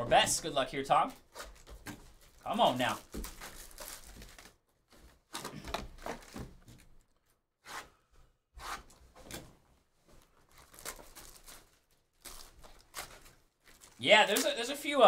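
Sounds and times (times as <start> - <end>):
cardboard boxes being unwrapped: 1.3 - 7.0, 10.5 - 14.5.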